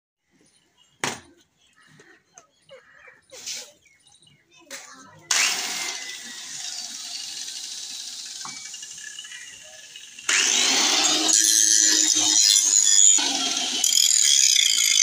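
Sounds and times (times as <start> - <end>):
electric power tool whining: 5.3 - 15.0.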